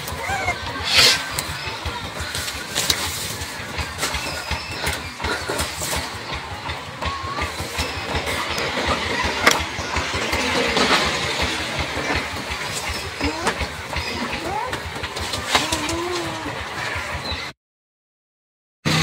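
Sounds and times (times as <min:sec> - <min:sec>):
puppies whimpering: 0:00.0 - 0:01.8.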